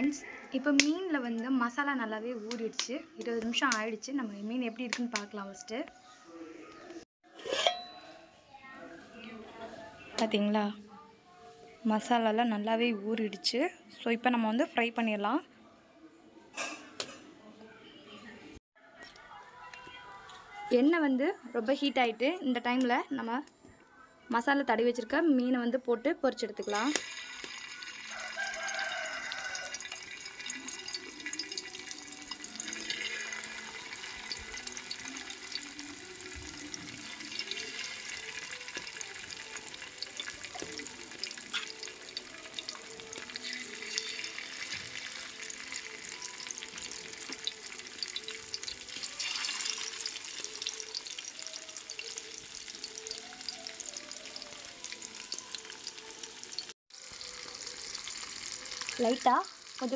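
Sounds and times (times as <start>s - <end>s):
fish sizzling in hot oil: 26.7s - 59.9s.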